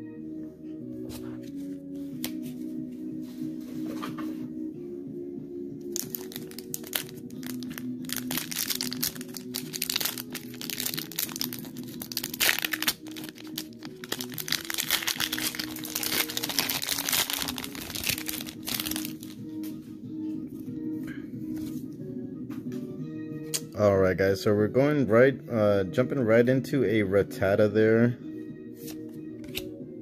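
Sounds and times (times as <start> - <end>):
background music stepped melody: 0.0 - 30.0
foil wrapper crinkling and tearing: 5.9 - 19.3.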